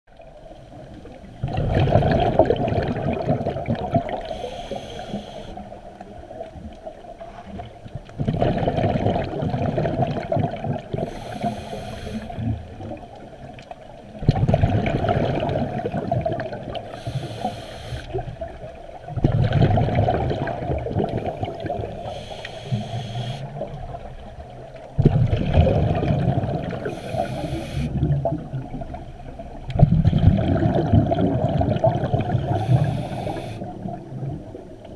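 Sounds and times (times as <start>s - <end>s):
rush of exhaled bubbles: 0.3s - 13.2s, 14.1s - 34.9s
diver inhaling through regulator: 4.2s - 5.7s, 11.0s - 12.5s, 16.9s - 18.2s, 21.3s - 23.6s, 26.8s - 28.1s, 32.4s - 33.8s.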